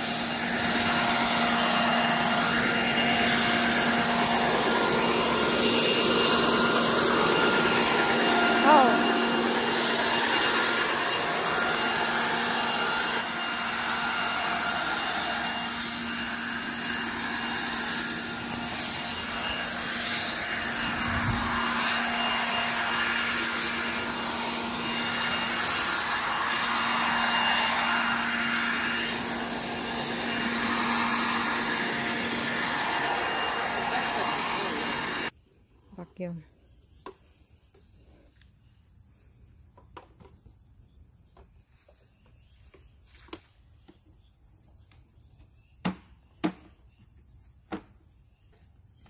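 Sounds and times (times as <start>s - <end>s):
leaf blower motor whine: 0.0s - 35.4s.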